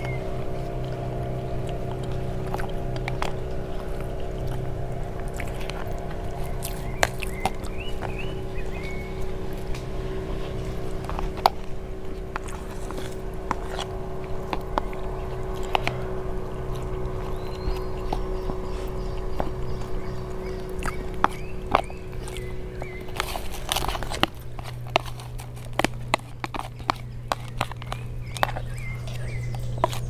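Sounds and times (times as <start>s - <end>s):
steady motor drone: 0.0s - 30.0s
bird chirps: 5.8s - 9.5s, 16.9s - 24.0s, 26.7s - 30.0s.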